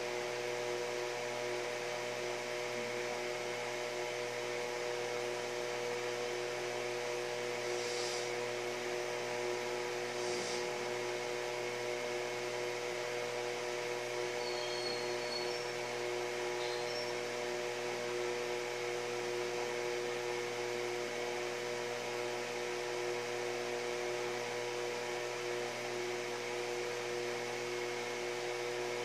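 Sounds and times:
steady tonal hum: 0:06.4 - 0:12.8, 0:13.8 - 0:19.0
soft high hisses: 0:07.6 - 0:08.4, 0:10.1 - 0:10.8
even hiss: 0:07.6 - 0:08.5, 0:10.1 - 0:10.9.

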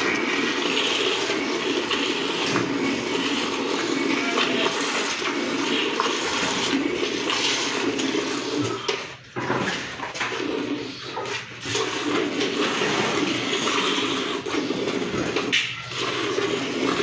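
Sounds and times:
milk squirting into bucket: 0:00.0 - 0:17.0.

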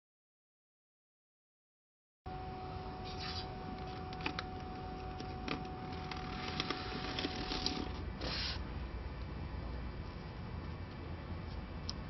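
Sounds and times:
faint steady hum: 0:02.3 - 0:12.0.

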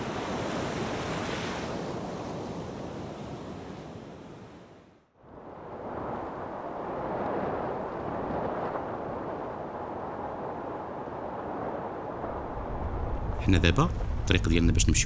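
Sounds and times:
wind rushing over microphone: 0:05.2 - 0:15.0.

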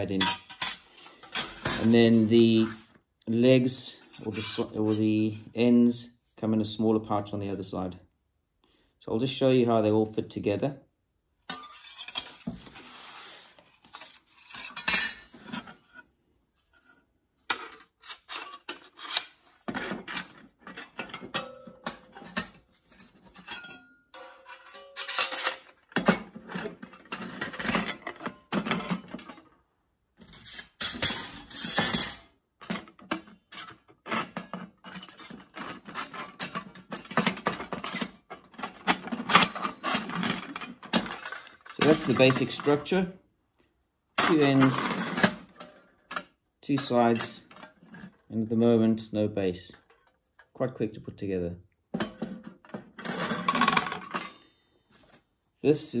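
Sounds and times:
metal plates clinking and scraping: 0:00.2 - 0:02.9, 0:03.9 - 0:05.1, 0:11.5 - 0:16.0, 0:16.6 - 0:29.6, 0:30.2 - 0:43.0, 0:44.2 - 0:48.3, 0:52.0 - 0:55.3.

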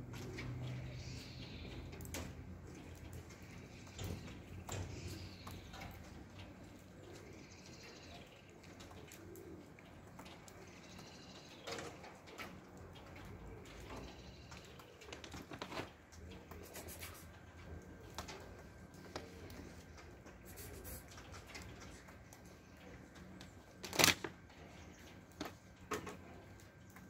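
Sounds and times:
doves cooing: 0:00.0 - 0:27.0.

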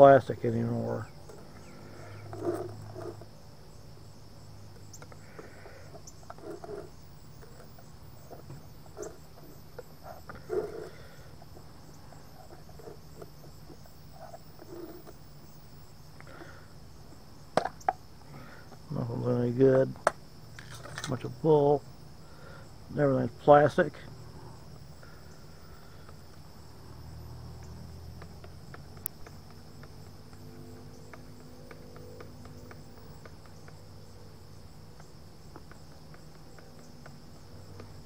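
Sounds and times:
crickets chirring: 0:00.0 - 0:38.0
screwdriver scraping plastic lid: 0:06.1 - 0:09.3.

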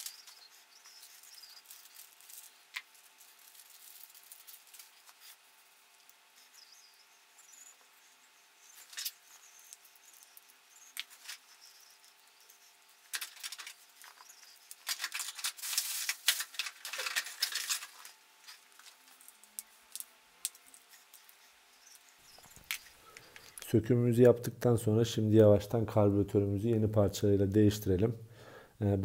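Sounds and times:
small metal parts clicking: 0:13.1 - 0:21.3.

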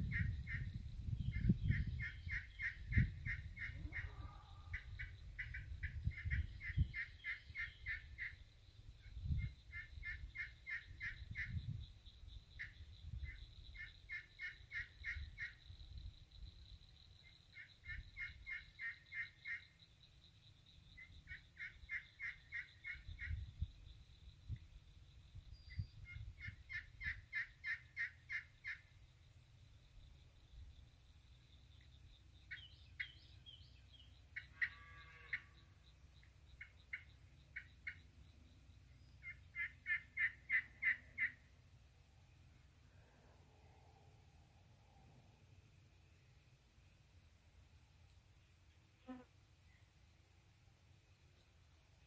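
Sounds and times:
turkey pot call notes: 0:39.2 - 0:41.4.

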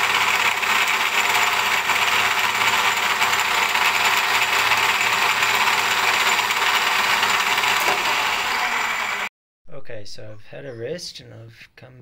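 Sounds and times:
milling machine cutting steel: 0:00.0 - 0:09.3.

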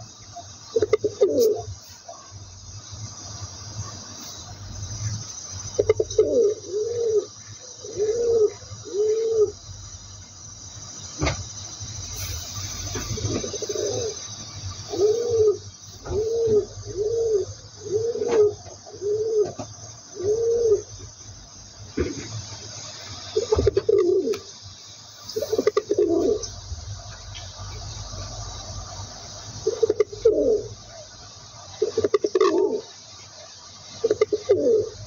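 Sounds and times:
steady high hiss: 0:00.0 - 0:35.0
pigeon cooing: 0:00.8 - 0:02.3, 0:05.8 - 0:09.6, 0:12.8 - 0:14.2, 0:14.9 - 0:19.6, 0:20.2 - 0:20.9, 0:23.4 - 0:24.5, 0:25.4 - 0:26.5, 0:29.6 - 0:31.1, 0:31.8 - 0:32.9, 0:34.0 - 0:35.0.

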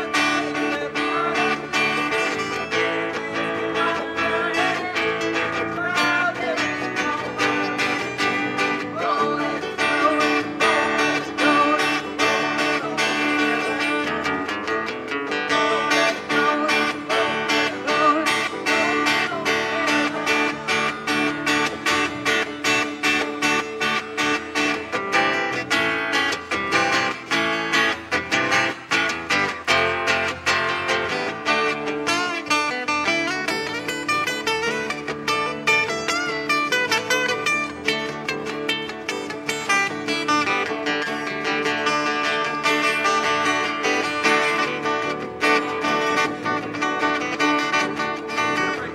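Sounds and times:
acoustic guitars strummed: 0:00.0 - 0:48.9
electric guitar playing: 0:00.0 - 0:48.9.

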